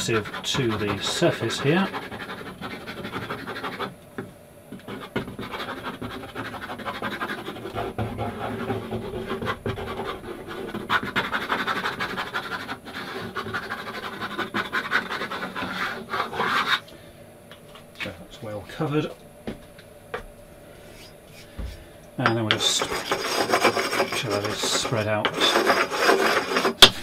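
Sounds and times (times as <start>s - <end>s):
scratchy rubbing of glue spreading: 0.0s - 3.9s, 4.9s - 16.8s, 22.6s - 26.8s.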